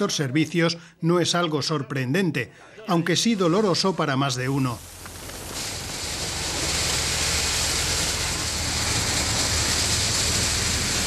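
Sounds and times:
loud even hiss: 0:03.7 - 0:11.0
tractor engine drone: 0:04.8 - 0:11.0.

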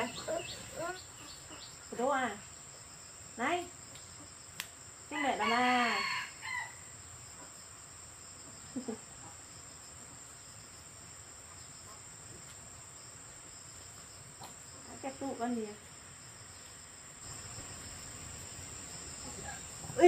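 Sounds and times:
crickets trilling: 0:00.0 - 0:20.0
rooster crowing: 0:05.2 - 0:06.9.

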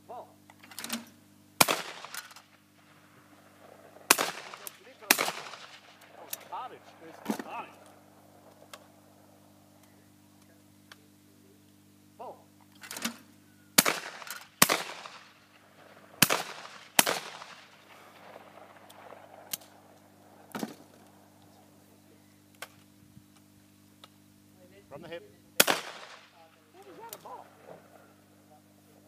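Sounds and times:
shotgun blasts with echo: 0:01.6 - 0:02.6, 0:03.4 - 0:07.8, 0:13.8 - 0:19.9, 0:25.6 - 0:26.5.

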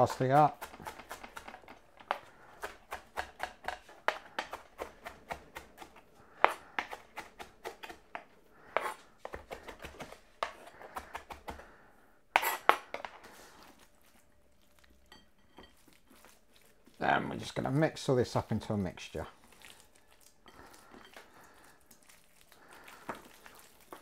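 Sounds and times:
knife chopping on a board: 0:00.1 - 0:11.6.

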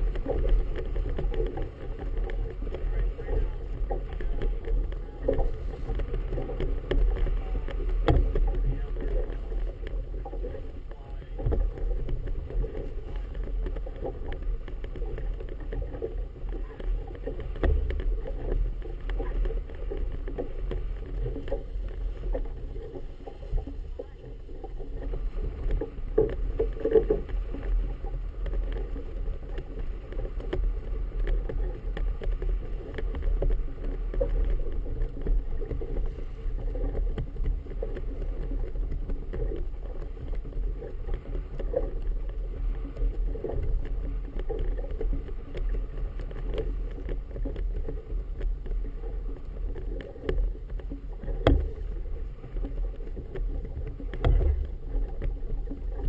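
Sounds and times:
knocks on boat: 0:00.0 - 0:09.5, 0:51.2 - 0:51.8
water slapping boat hull: 0:00.0 - 0:56.0
wind: 0:00.0 - 0:56.0.

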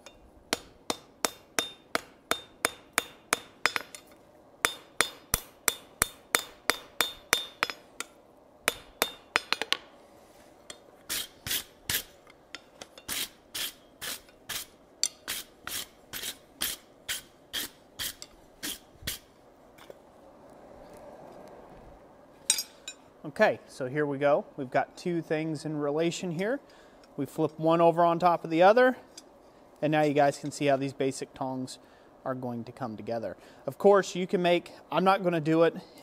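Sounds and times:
hammer striking steel on anvil: 0:00.0 - 0:09.8, 0:10.7 - 0:18.8, 0:22.5 - 0:23.0
wire brush scrubbing steel: 0:10.4 - 0:19.3.

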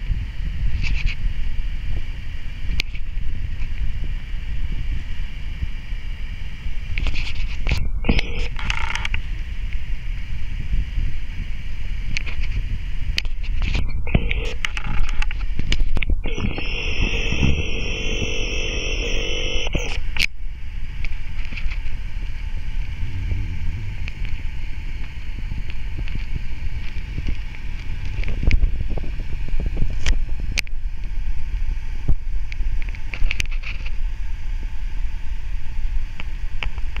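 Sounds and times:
wind buffeting microphone: 0:21.8 - 0:30.9.

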